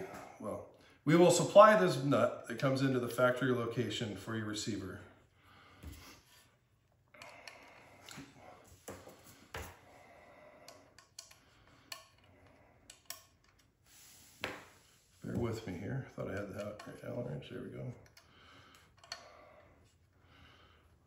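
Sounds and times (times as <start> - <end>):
light clicks and knocks of tools: 10.6 - 13.8, 16.2 - 17.2, 17.9 - 19.4.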